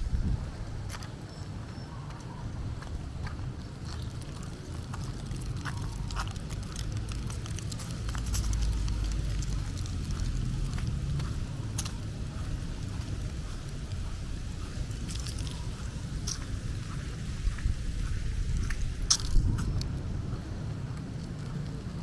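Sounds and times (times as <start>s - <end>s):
low street rumble: 0.0s - 22.0s.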